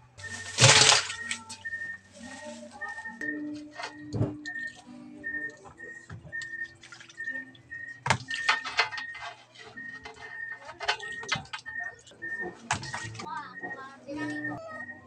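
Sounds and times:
fish splashing in water basin: 0.2 - 1.7, 6.4 - 8.7, 10.9 - 13.2.

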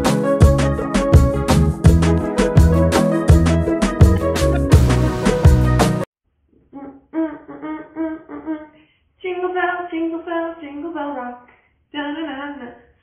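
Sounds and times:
woman singing: 6.8 - 12.9.

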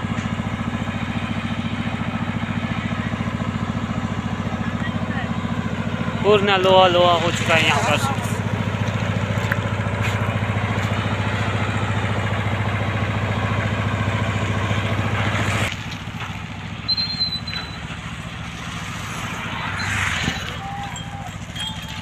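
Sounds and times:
small engine idling: 0.0 - 22.0
high chirp: 16.8 - 18.0.

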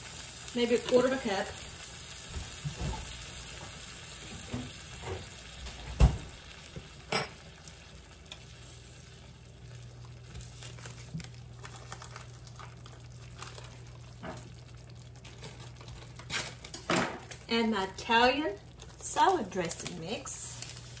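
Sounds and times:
sauce sizzling in a skillet: 0.0 - 21.0
spatula stirring: 9.6 - 17.5.

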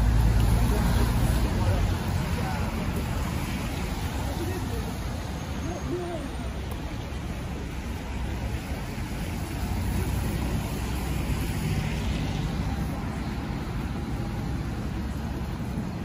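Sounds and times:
car passing with tyre hiss: 0.0 - 16.0
traffic rumble on wet road: 0.0 - 16.0.

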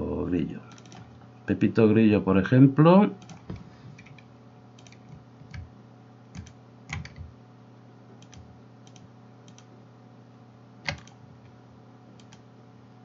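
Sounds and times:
steady low hum: 0.0 - 13.0
mouse and keyboard clicks: 4.8 - 5.7, 8.2 - 9.7, 10.8 - 11.2, 12.2 - 12.4.

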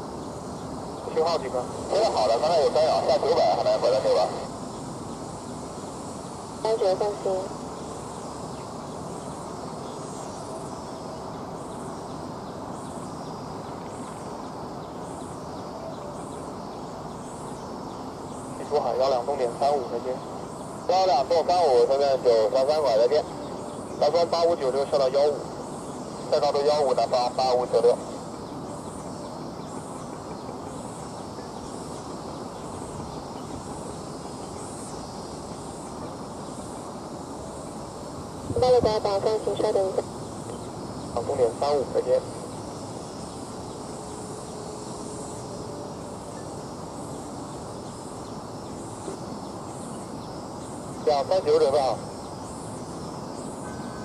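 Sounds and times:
faint high chirp: 53.4 - 54.0.

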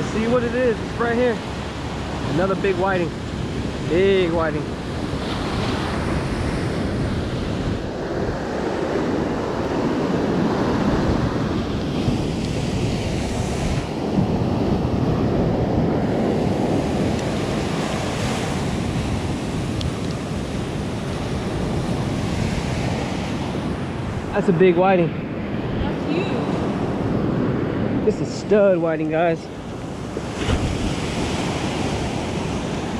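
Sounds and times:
surf breaking on sand: 0.0 - 32.9
wind buffeting the microphone: 0.0 - 32.9.

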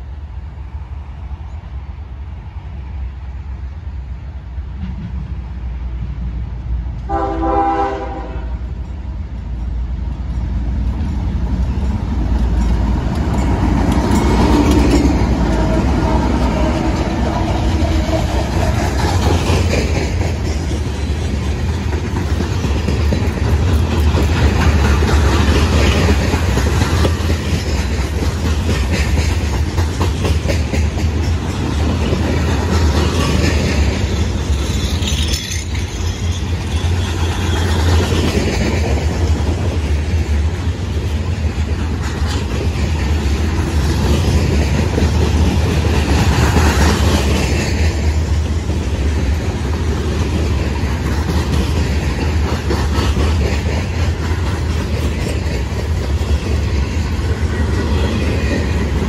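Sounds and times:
diesel locomotives rumbling past: 0.0 - 59.0
train wheels clattering on rails: 6.9 - 59.0
train air horn blast: 7.1 - 8.7.

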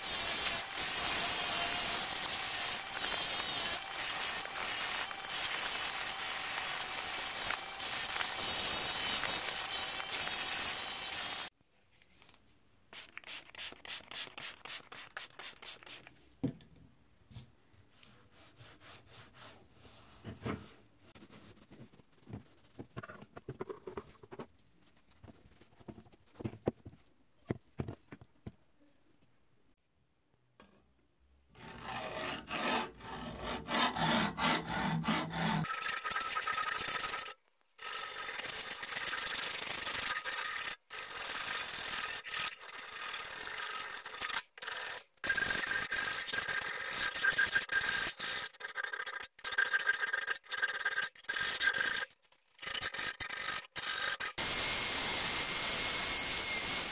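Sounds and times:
metal file scraping steel blade: 31.6 - 54.5.

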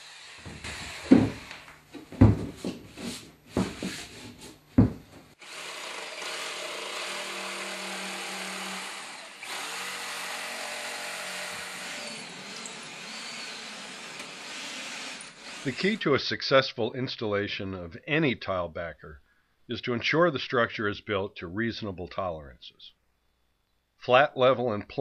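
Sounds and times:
drill boring through board: 0.0 - 1.7, 5.4 - 16.0
jigsaw cutting board: 0.0 - 16.0
knocks and scrapes of board: 0.4 - 1.4, 2.0 - 5.1.

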